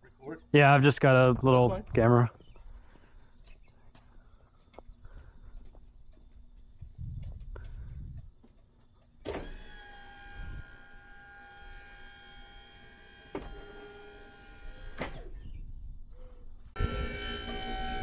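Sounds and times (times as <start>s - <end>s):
hydraulic pump motor whining: 9.2s - 15.6s, 16.8s - 18.0s.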